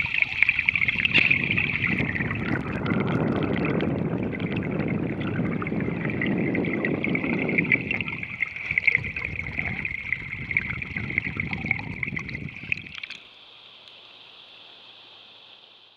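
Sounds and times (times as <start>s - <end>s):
underwater rushing gurgle: 0.0s - 13.2s
steady hiss: 8.0s - 15.9s.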